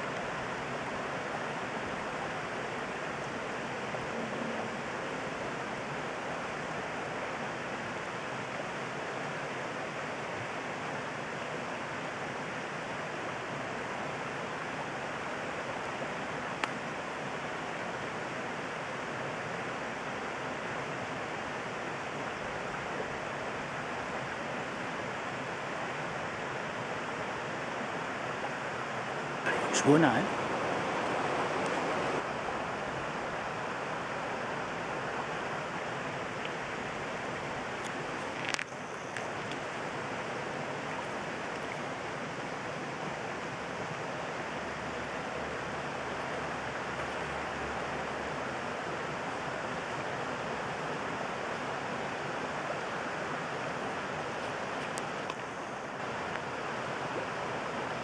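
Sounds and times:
river flowing over stones: 0:00.0 - 0:58.0.

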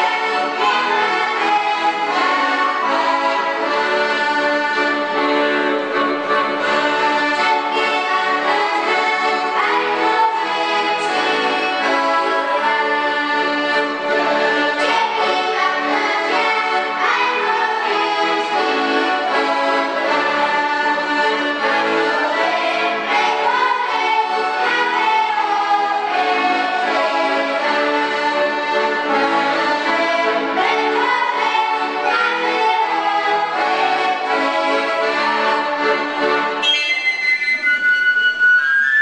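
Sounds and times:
boys singing a folk song: 0:00.0 - 0:36.6
instrumental accompaniment: 0:00.0 - 0:39.0.

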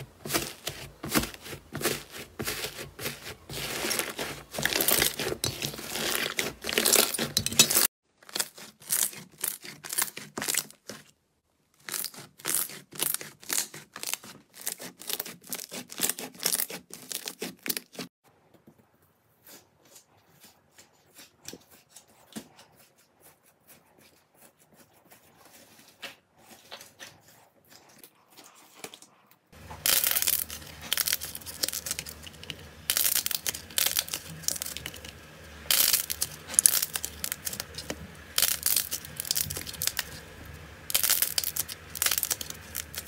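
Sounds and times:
slime tearing and squishing: 0:00.1 - 0:11.1, 0:11.8 - 0:18.1, 0:29.6 - 0:43.0.

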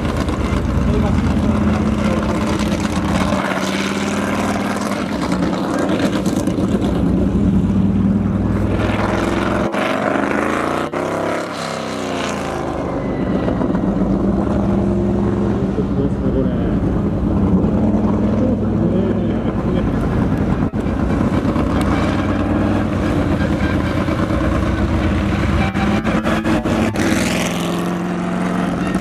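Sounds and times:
race car engine passing: 0:00.0 - 0:29.0.

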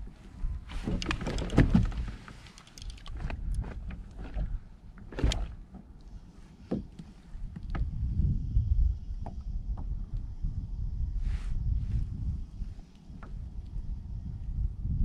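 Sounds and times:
steady low rumble: 0:00.0 - 0:15.0
fishing gear knocks and clicks: 0:00.8 - 0:05.9.

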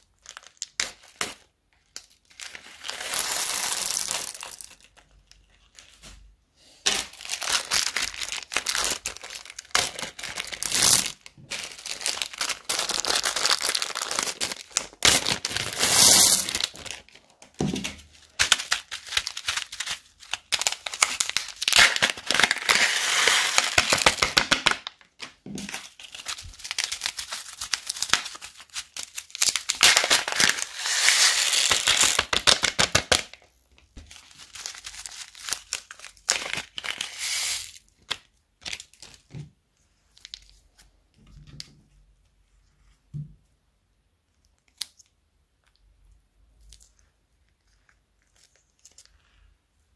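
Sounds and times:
plastic bags crinkling: 0:00.2 - 0:06.0, 0:06.9 - 0:33.3, 0:34.0 - 0:39.2.

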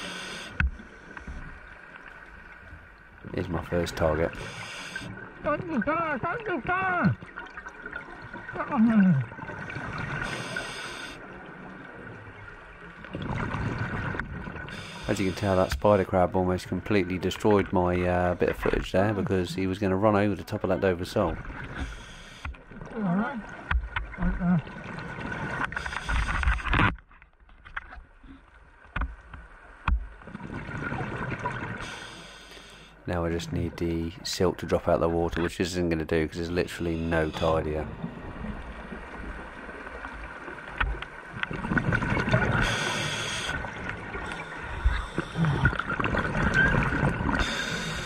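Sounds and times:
regulator hiss: 0:04.3 - 0:05.1, 0:42.6 - 0:43.6
gurgle of exhaled bubbles: 0:41.5 - 0:42.9, 0:44.8 - 0:47.5.

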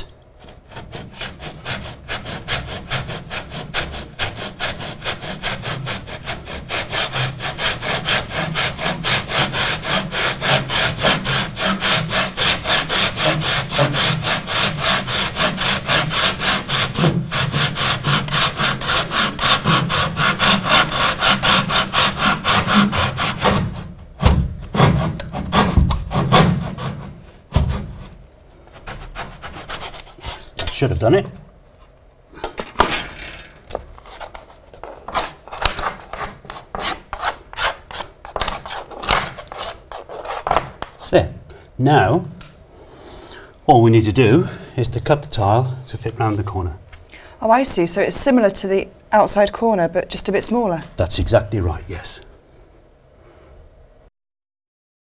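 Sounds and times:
handsaw cutting wood: 0:00.4 - 0:27.9.

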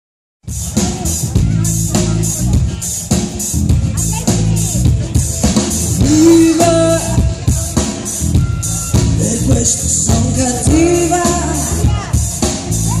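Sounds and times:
drum kit: 0:00.4 - 0:13.0
electric bass: 0:00.4 - 0:13.0
electric guitar: 0:00.5 - 0:13.0
woman singing: 0:06.0 - 0:07.5, 0:09.2 - 0:12.2.

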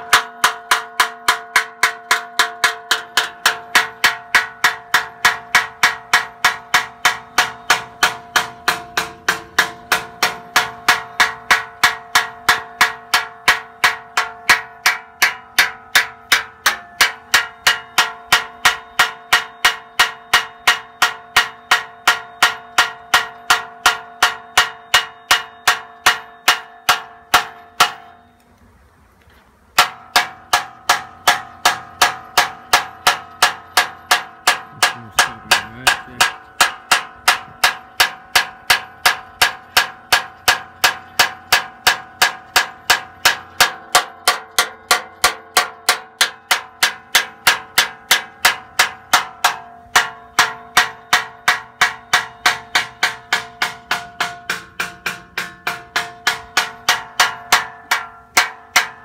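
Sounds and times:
metal striking metal ringing: 0:00.0 - 0:28.4, 0:29.8 - 0:59.0.

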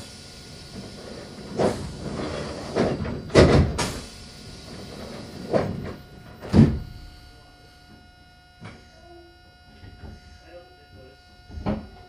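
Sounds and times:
train doors thudding shut: 0:02.6 - 0:04.1, 0:05.4 - 0:06.9.

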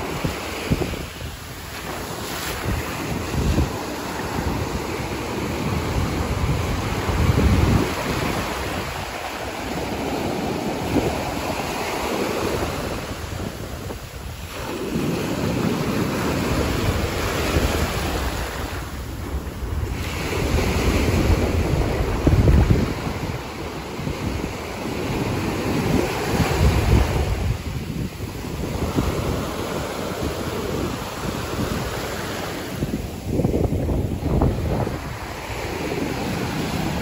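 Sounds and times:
waves washing up on sandy beach: 0:00.0 - 0:37.0
wind buffeting microphone: 0:00.0 - 0:37.0.

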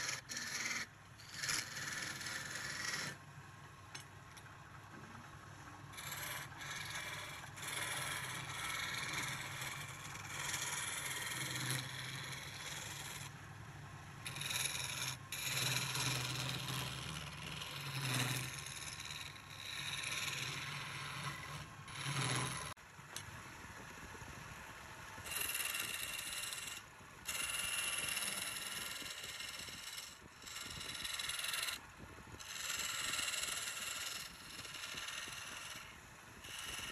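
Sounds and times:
chisel scraping wood on lathe: 0:00.0 - 0:03.2, 0:05.9 - 0:13.3, 0:14.2 - 0:22.8, 0:25.3 - 0:31.8, 0:32.4 - 0:36.9
lathe low hum: 0:00.0 - 0:36.9.

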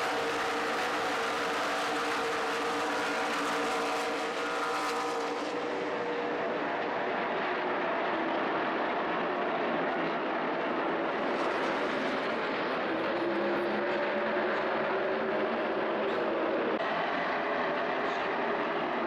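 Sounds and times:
race car engines passing: 0:00.0 - 0:07.0.

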